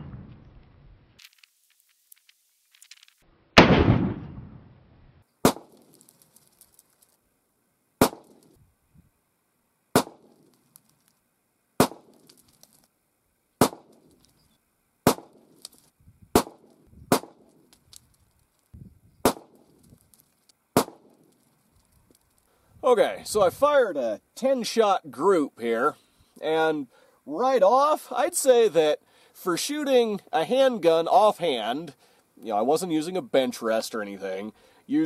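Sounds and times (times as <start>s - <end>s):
pistol shots: 3.6s - 4.6s, 5.4s - 5.9s, 8.0s - 8.5s, 10.0s - 10.4s, 11.8s - 12.2s, 13.6s - 14.0s, 15.1s - 15.5s, 16.4s - 17.5s, 19.2s - 19.6s, 20.8s - 21.1s.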